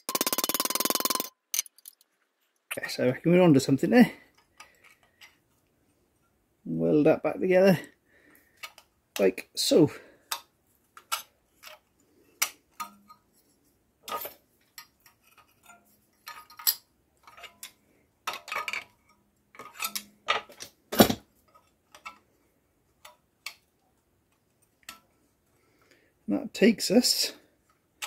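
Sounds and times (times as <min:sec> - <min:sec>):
sheet steel pieces clinking: 0:00.0 - 0:02.1, 0:14.0 - 0:20.7.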